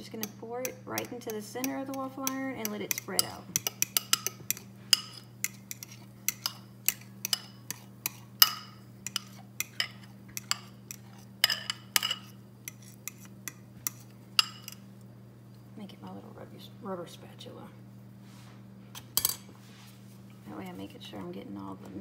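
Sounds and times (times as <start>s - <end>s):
utensil scraping a bowl: 1.0s - 14.8s.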